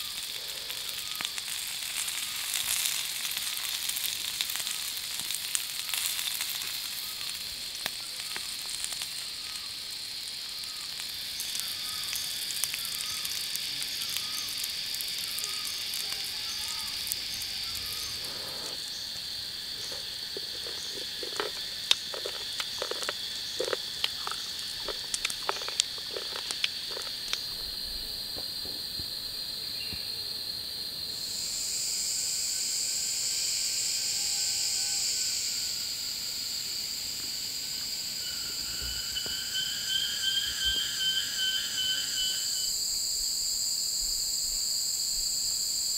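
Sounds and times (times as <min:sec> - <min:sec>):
high-pitched insect drone: 0:00.0 - 0:45.9
sharp clicks and snaps: 0:19.9 - 0:27.5.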